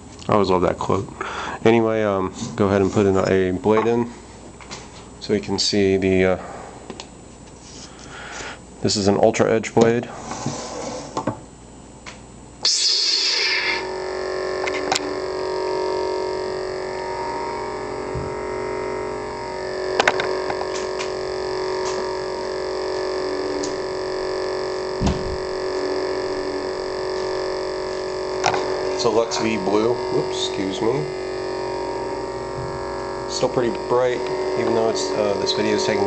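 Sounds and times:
electric hum: 0:00.0 - 0:36.0
lightsaber igniting surge: 0:12.6 - 0:18.4, 0:19.9 - 0:31.1.

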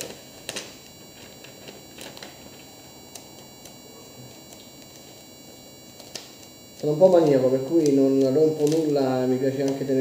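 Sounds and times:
plastic wrap rustling: 0:00.0 - 0:02.7.

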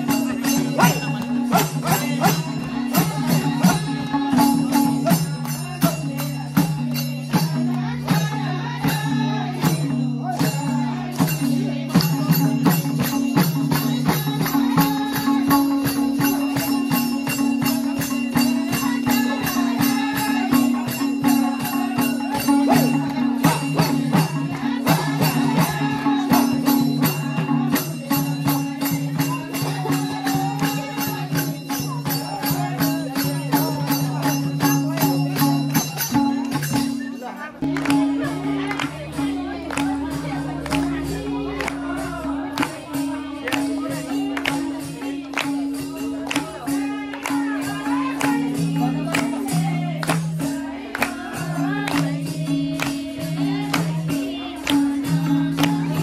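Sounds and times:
hand drum beating: 0:00.0 - 0:56.0
voices singing: 0:00.0 - 0:56.0
hand clapping: 0:37.6 - 0:56.0
low drone: 0:38.9 - 0:43.6.

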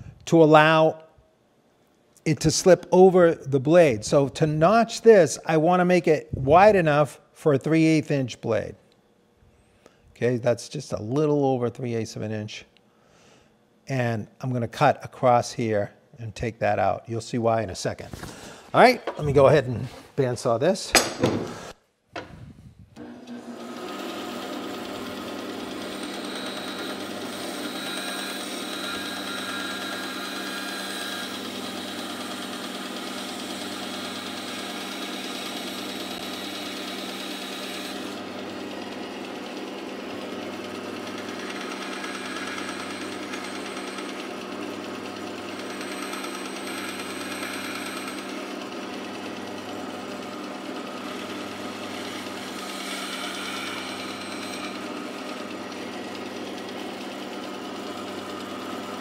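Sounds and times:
bandsaw humming: 0:23.0 - 0:59.0
saw blade cutting wood: 0:23.0 - 0:59.0.

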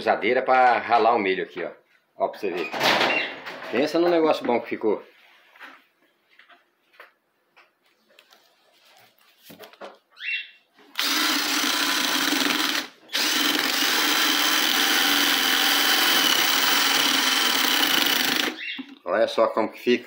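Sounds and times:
cordless drill motor whine: 0:11.0 - 0:18.8.

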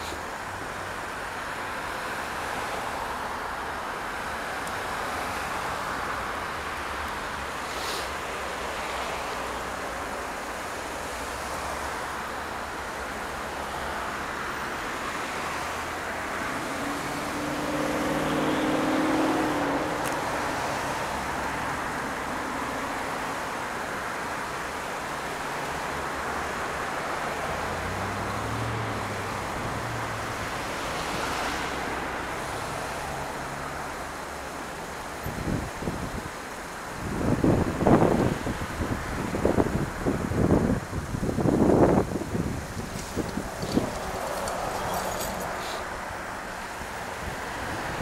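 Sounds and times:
road noise: 0:00.0 - 0:48.0
passing car engine: 0:12.8 - 0:36.0, 0:37.2 - 0:48.0
lower engine passing: 0:16.4 - 0:22.8, 0:41.8 - 0:46.9.

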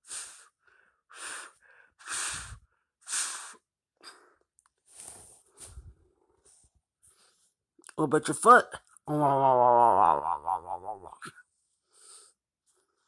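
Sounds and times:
short breathy puffs: 0:01.2 - 0:07.6.

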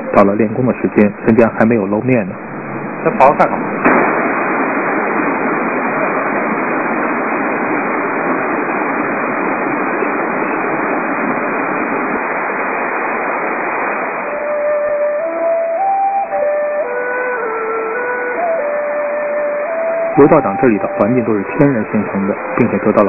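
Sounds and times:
stream and waterfall over rocks: 0:11.8 - 0:23.0.

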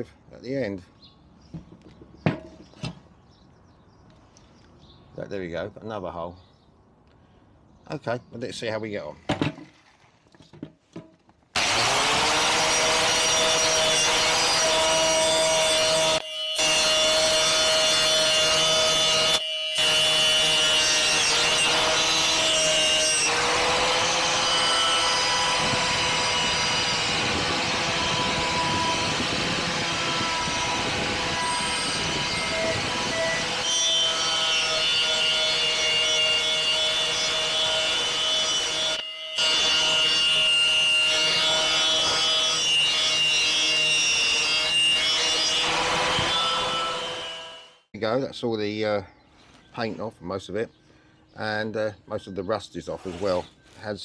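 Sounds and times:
angle grinder whining on metal: 0:11.6 - 0:47.9.

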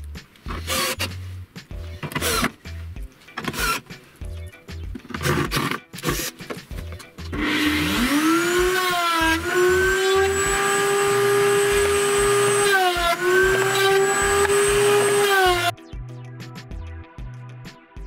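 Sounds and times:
router whining: 0:07.3 - 0:15.7
cordless drill bursts: 0:07.4 - 0:15.7
router cutting wood: 0:07.4 - 0:15.7.

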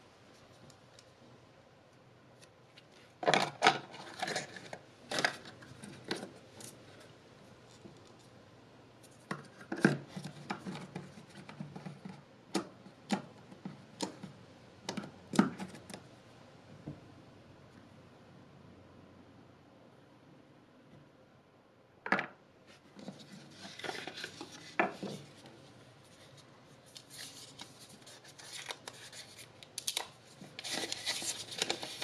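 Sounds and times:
plastic cable and cardboard handling: 0:02.3 - 0:08.4, 0:09.0 - 0:16.0, 0:22.7 - 0:32.0.

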